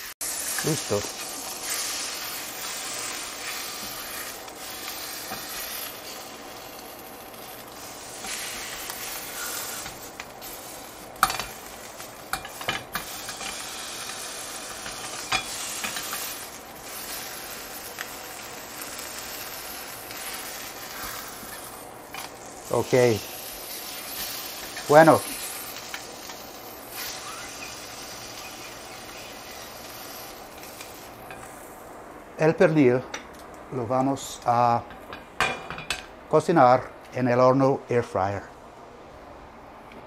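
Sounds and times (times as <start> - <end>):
chicken sizzling in a pan: 0.0 - 32.0
metal tongs clinking on pan: 11.2 - 13.6, 14.7 - 16.3.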